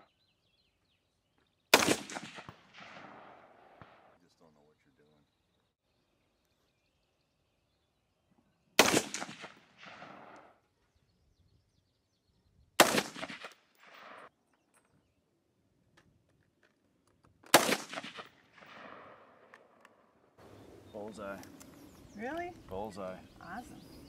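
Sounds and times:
rifle shots: 0:01.7 - 0:04.2, 0:08.8 - 0:10.6, 0:12.8 - 0:14.3, 0:17.5 - 0:19.8.

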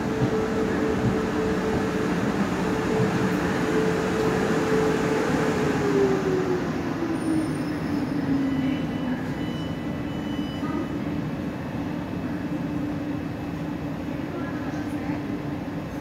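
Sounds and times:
wheel and track rumble: 0:00.0 - 0:08.2.

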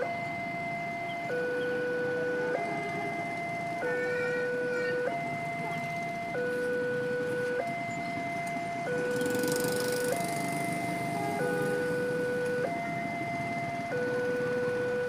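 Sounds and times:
two-tone level crossing warning: 0:00.0 - 0:15.0.

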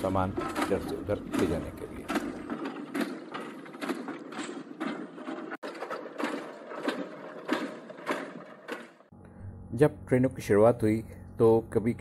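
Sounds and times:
steam locomotive mechanical beat: 0:00.0 - 0:09.1.

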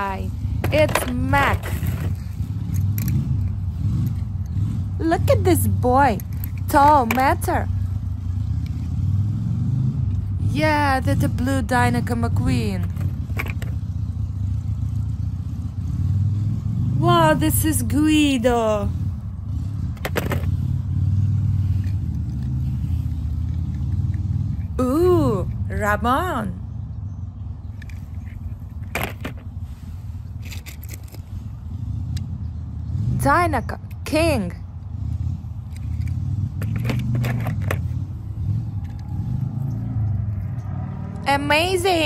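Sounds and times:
car engine rumbling: 0:00.0 - 0:42.0
toy cars clicking in a box: 0:06.0 - 0:07.6, 0:30.4 - 0:31.3, 0:35.6 - 0:38.0.

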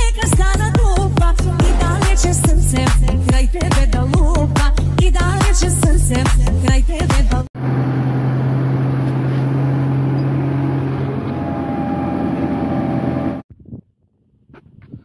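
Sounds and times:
tractor engine running: 0:07.6 - 0:13.4.

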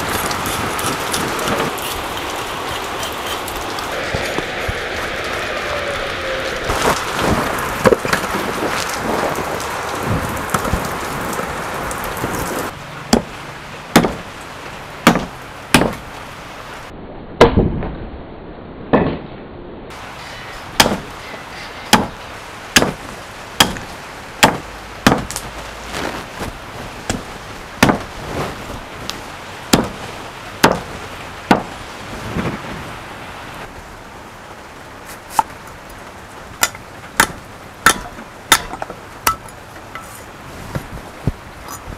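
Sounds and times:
running hose: 0:00.0 - 0:12.8, 0:19.9 - 0:33.0
cleaver chopping on wooden block: 0:13.1 - 0:13.3, 0:13.9 - 0:14.2, 0:15.0 - 0:16.0, 0:20.8 - 0:21.1, 0:21.9 - 0:22.2, 0:22.8 - 0:23.0, 0:23.6 - 0:25.4, 0:27.1 - 0:28.1, 0:29.7 - 0:30.0, 0:30.6 - 0:30.9, 0:31.5 - 0:31.7, 0:36.6 - 0:39.4.

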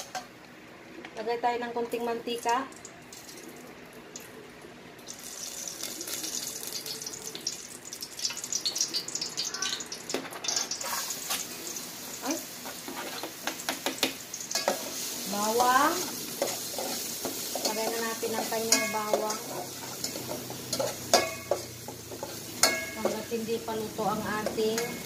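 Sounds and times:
oil sizzling in a pot: 0:05.0 - 0:25.0.

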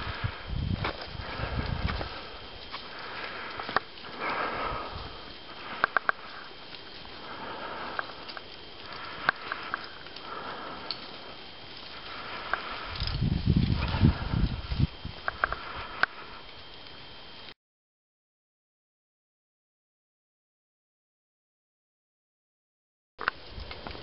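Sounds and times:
person breathing: 0:00.0 - 0:16.6.

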